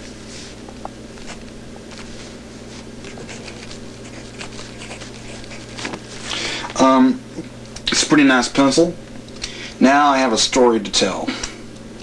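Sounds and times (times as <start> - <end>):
pencil scratching on paper: 3.0 - 6.2.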